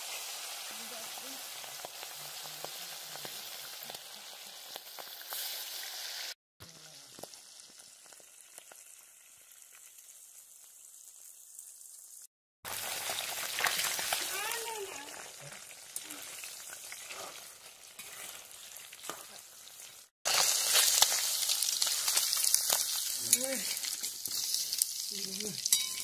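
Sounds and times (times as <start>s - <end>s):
bones sizzling in hot oil: 0.0s - 26.0s.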